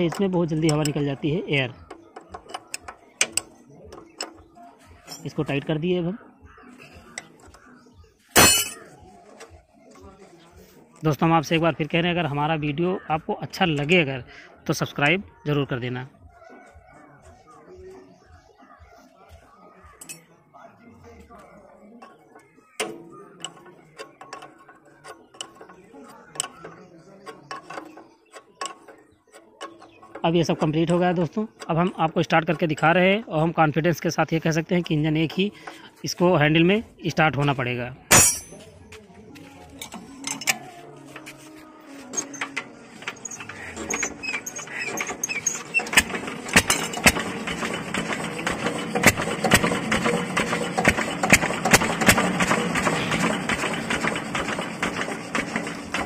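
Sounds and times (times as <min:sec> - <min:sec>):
engine hand-cranked: 0:00.0 - 0:05.8, 0:21.3 - 0:38.6, 0:39.6 - 0:56.0
spanner clicking on metal nut: 0:42.1 - 0:48.1
diesel engine firing knocks: 0:43.5 - 0:56.0.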